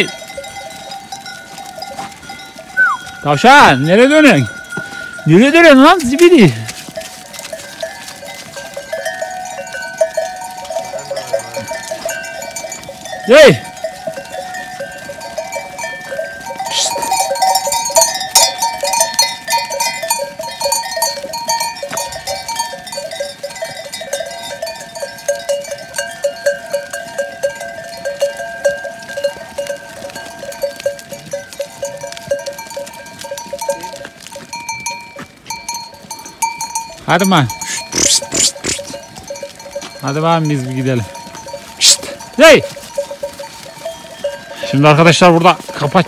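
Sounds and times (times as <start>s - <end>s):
goat bells clanking and jingling: 0.0s - 46.0s
goat bleat: 37.5s - 39.2s.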